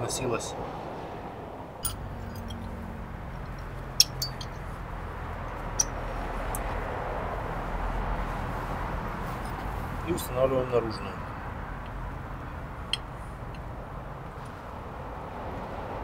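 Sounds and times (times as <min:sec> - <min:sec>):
metallic clicks of brake parts: 0:01.8 - 0:02.8, 0:03.4 - 0:04.7, 0:05.4 - 0:06.7, 0:12.9 - 0:13.7.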